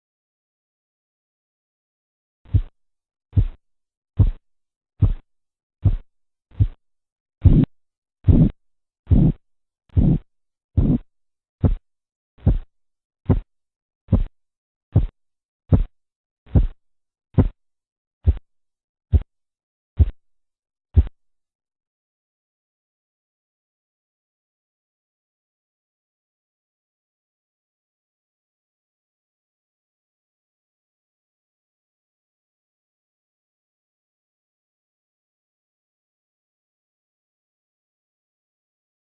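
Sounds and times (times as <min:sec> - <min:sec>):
pulse thumps through stethoscope: 0:02.5 - 0:02.7, 0:03.4 - 0:03.6, 0:04.2 - 0:04.4, 0:05.0 - 0:05.2, 0:05.8 - 0:06.8, 0:07.4 - 0:07.7, 0:08.3 - 0:10.2, 0:10.8 - 0:11.8, 0:12.4 - 0:12.7, 0:13.3 - 0:13.5, 0:14.1 - 0:14.3, 0:14.9 - 0:15.9, 0:16.5 - 0:16.8, 0:17.4 - 0:17.6, 0:18.2 - 0:18.4, 0:20.0 - 0:20.2, 0:21.0 - 0:21.2.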